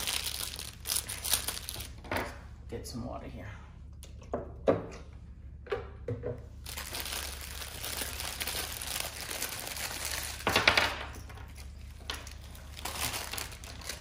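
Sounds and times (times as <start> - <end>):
wrapping crinkling and rustling: 0.0 - 2.0, 6.6 - 14.0.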